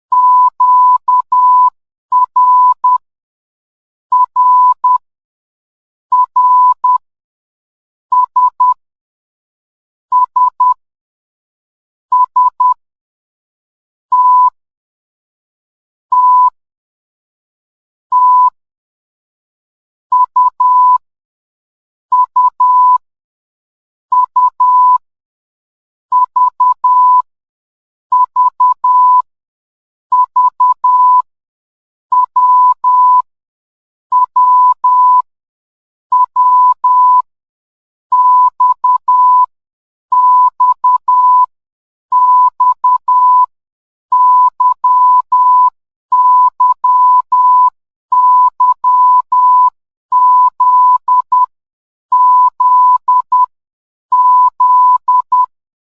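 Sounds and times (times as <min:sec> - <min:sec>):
morse code beeps: 0:00.1 - 0:03.0, 0:04.1 - 0:05.0, 0:06.1 - 0:07.0, 0:14.1 - 0:14.6, 0:16.1 - 0:16.6, 0:18.1 - 0:18.6, 0:20.1 - 0:21.0, 0:22.1 - 0:23.0, 0:24.1 - 0:25.0, 0:26.1 - 0:27.3, 0:28.1 - 0:29.3, 0:30.1 - 0:31.3, 0:32.1 - 0:33.3, 0:34.1 - 0:35.3, 0:36.1 - 0:37.3, 0:38.1 - 0:39.5, 0:40.1 - 0:41.5, 0:42.1 - 0:43.5, 0:44.1 - 0:51.5, 0:52.1 - 0:53.5, 0:54.1 - 0:55.5.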